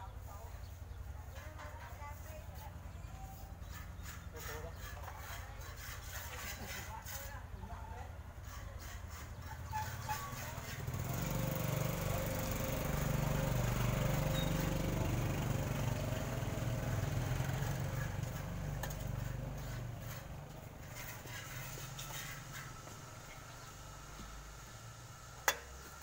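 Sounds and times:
motor scooter engine passing by: 0:09.6 - 0:26.0.

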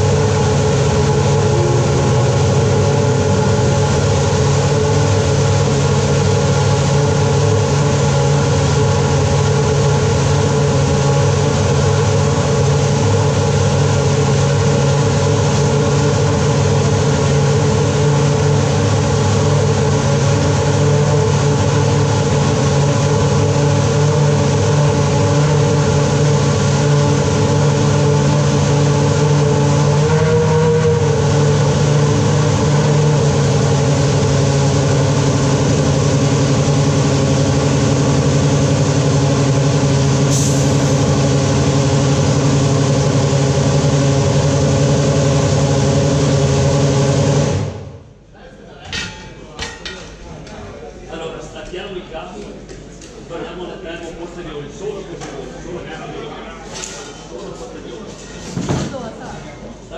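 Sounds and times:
racing car engine idling: 0:00.0 - 0:47.7.

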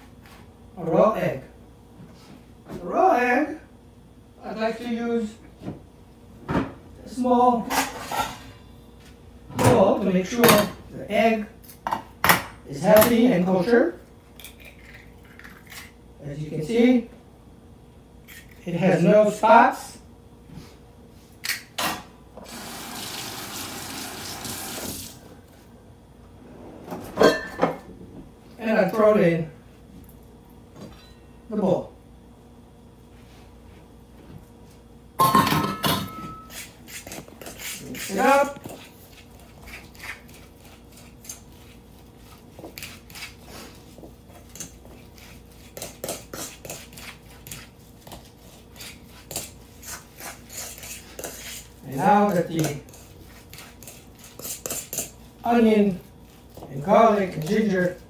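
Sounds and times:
water running from faucet: 0:22.5 - 0:25.2
metal bowl clinking: 0:35.2 - 0:36.6.

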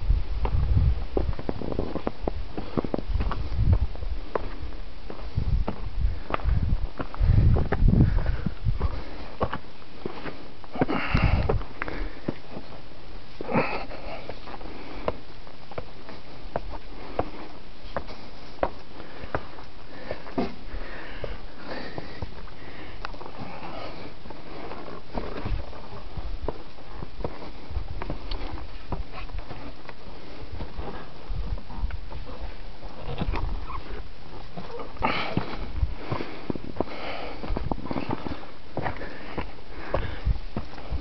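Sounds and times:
low rumbling: 0:00.0 - 0:09.2
footsteps on rocky trail: 0:00.0 - 0:41.0.

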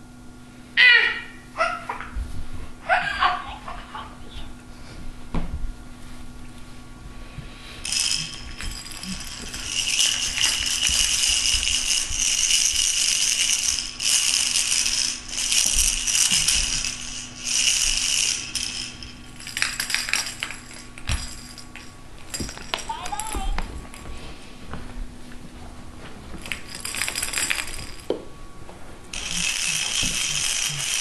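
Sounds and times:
toy rattle shaken: 0:07.8 - 0:23.6, 0:26.4 - 0:28.1, 0:29.1 - 0:31.0.

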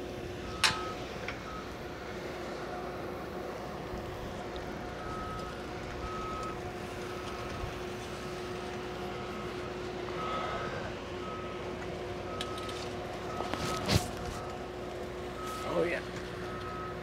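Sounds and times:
machinery hum: 0:00.0 - 0:17.0
vehicle backup alarm beeping: 0:00.0 - 0:17.0.

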